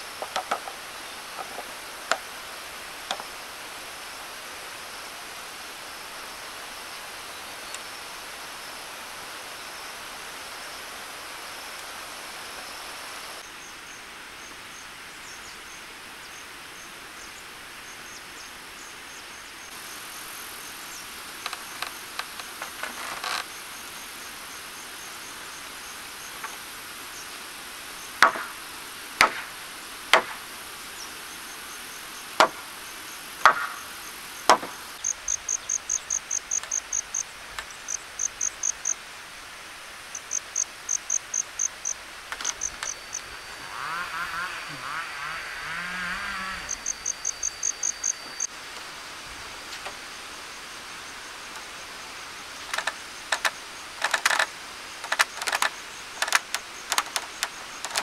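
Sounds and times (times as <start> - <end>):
outdoor insect hum: 0.0 - 58.0
cricket chirping: 16.3 - 58.0
hammer striking timber: 28.2 - 28.6, 29.2 - 29.5, 30.1 - 30.4, 32.4 - 32.7, 33.4 - 33.8, 34.5 - 34.8.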